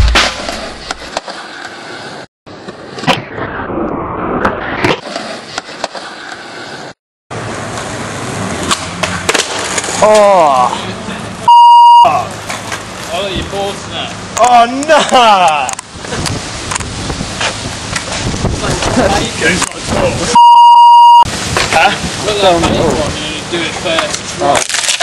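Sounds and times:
skateboard wheels rolling on concrete: 0.1 - 3.3, 4.4 - 25.0
loud steady beep: 11.5 - 12.2, 20.4 - 21.3.

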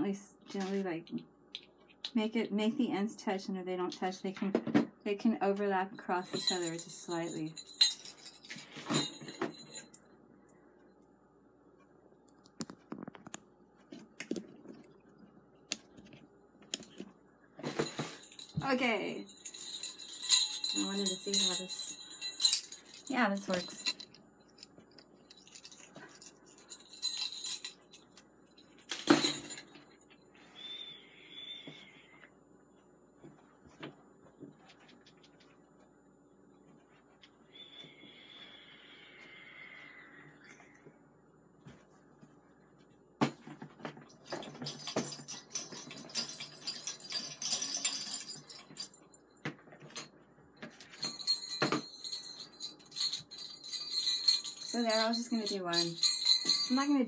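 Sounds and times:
small jingle bells jingling: 6.0 - 10.0, 17.6 - 30.0, 44.2 - 57.0.

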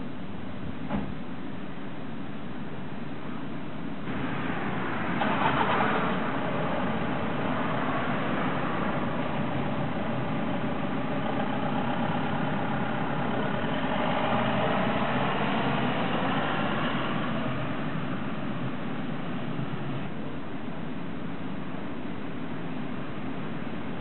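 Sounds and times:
train wheels running on rails: 4.1 - 20.9.

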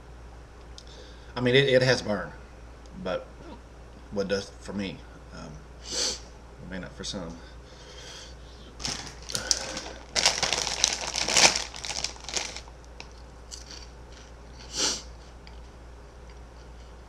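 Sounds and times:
foil snack bag crinkling: 8.8 - 14.7.

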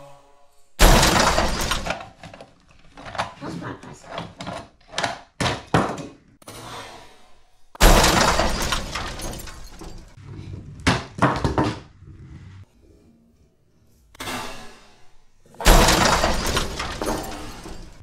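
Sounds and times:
glass shattering: 0.8 - 2.0, 7.8 - 10.2, 15.6 - 18.0
sharp clatters: 0.8 - 2.4, 7.8 - 10.2, 15.6 - 18.0.

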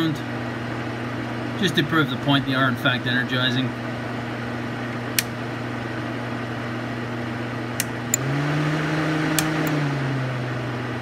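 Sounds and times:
radiator cooling fan humming: 0.0 - 11.0.

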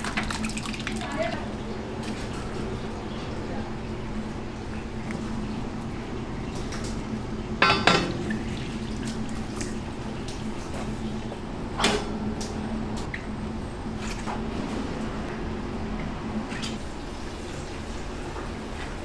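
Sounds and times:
steady hum: 0.0 - 19.0
dishes and utensils clinking: 7.6 - 8.3
dishes clattering: 7.6 - 8.4.

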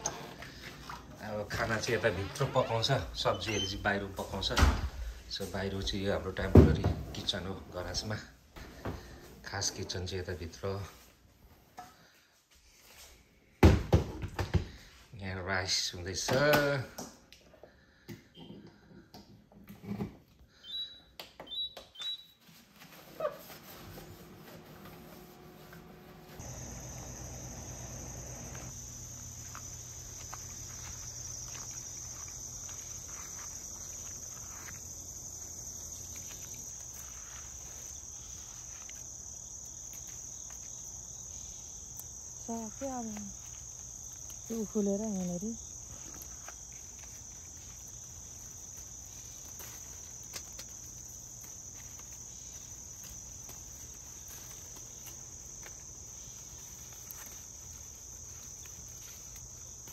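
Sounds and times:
crickets chirring: 0.0 - 11.0, 26.3 - 59.9
person's voice: 44.5 - 45.6.

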